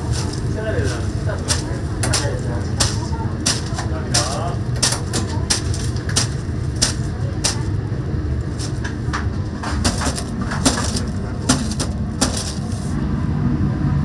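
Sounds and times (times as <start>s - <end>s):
sharp clicks and knocks: 0.1s - 7.8s, 8.4s - 12.8s.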